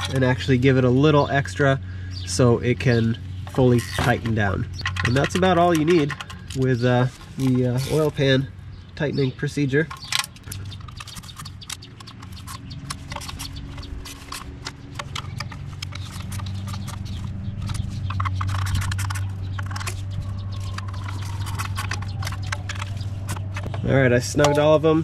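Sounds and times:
ratchet clicking: 9.9 - 23.7.

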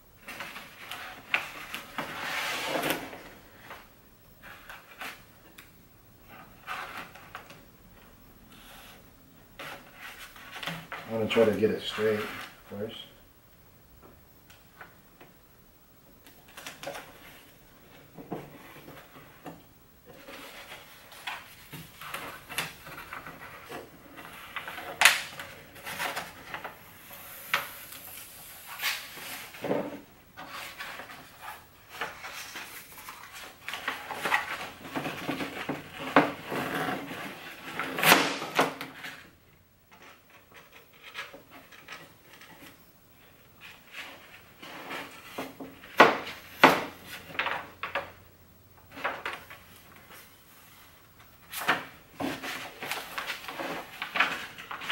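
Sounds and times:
vinyl film rustling and crinkling: 16.3 - 48.1, 48.8 - 54.9.

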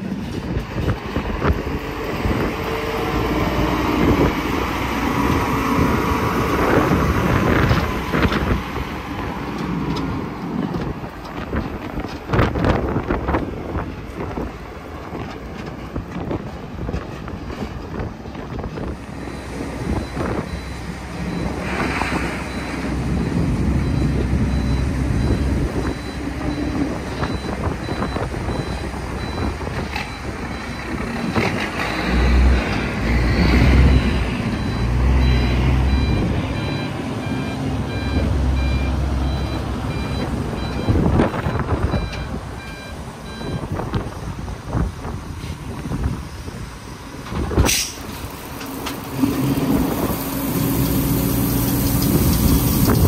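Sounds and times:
diesel engine rumbling: 0.0 - 53.0
reversing alarm beeping: 19.3 - 31.0, 33.8 - 43.7.

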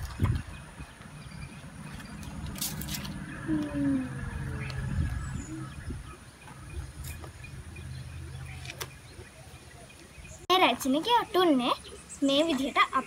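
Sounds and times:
low motor drone: 1.2 - 8.6
dry leaves clicking: 2.2 - 3.2.

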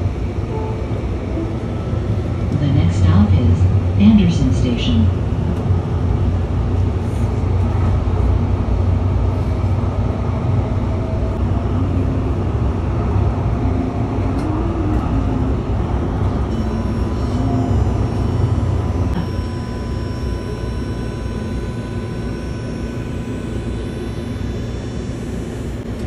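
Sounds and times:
train running rumble: 0.0 - 26.0
faint wavering whine: 16.4 - 26.0.

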